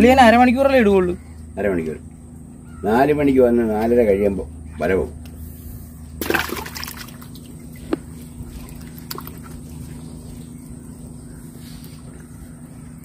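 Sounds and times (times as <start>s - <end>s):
steady low hum: 0.0s - 13.0s
water splashing and trickling: 6.2s - 10.8s.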